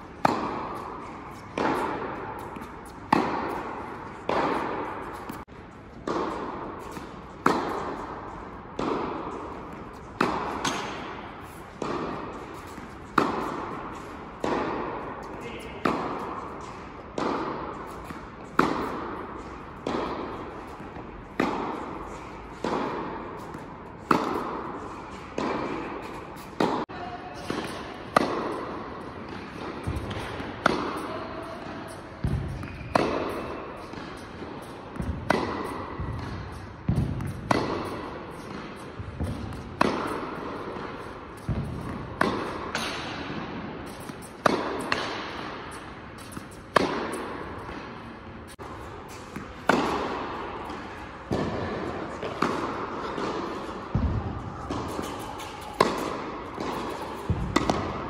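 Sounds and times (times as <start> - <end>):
tennis ball bounces: 0.1 - 58.0
tennis ball racket hits: 0.1 - 58.0.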